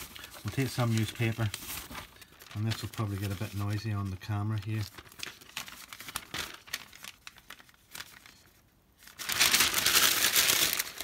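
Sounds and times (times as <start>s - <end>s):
newspaper crumpling: 0.0s - 11.0s
newspaper rustling: 0.0s - 11.0s.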